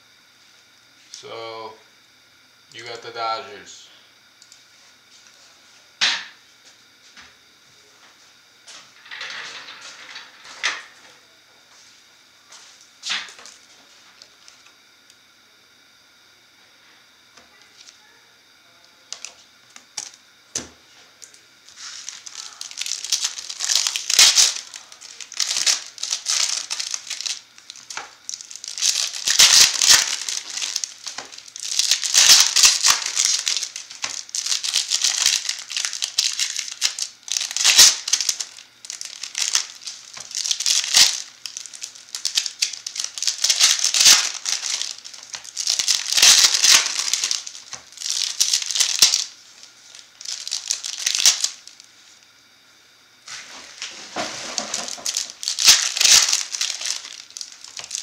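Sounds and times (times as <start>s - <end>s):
foil wrappers crinkling and ripping: 19.1s - 20.2s, 21.2s - 52.0s, 53.3s - 58.0s.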